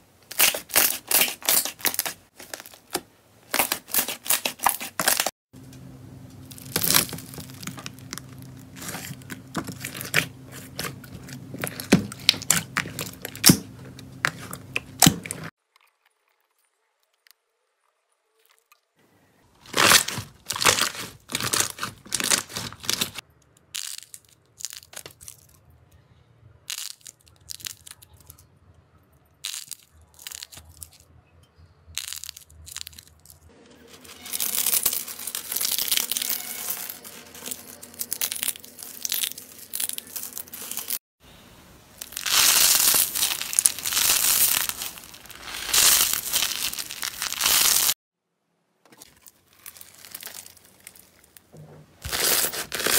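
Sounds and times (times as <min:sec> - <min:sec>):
slime popping and crackling: 0:00.3 - 0:05.3, 0:06.4 - 0:15.5, 0:19.7 - 0:25.4, 0:26.7 - 0:28.1, 0:29.4 - 0:31.0, 0:32.0 - 0:33.3, 0:42.0 - 0:48.0
soap curls crunching: 0:00.3 - 0:05.4, 0:06.3 - 0:17.2, 0:19.6 - 0:25.5, 0:26.7 - 0:28.4, 0:29.4 - 0:31.0, 0:32.0 - 0:41.0, 0:42.0 - 0:48.0, 0:49.0 - 0:52.9
grainy slime crackling: 0:06.4 - 0:17.8, 0:42.0 - 0:48.0, 0:49.4 - 0:51.4.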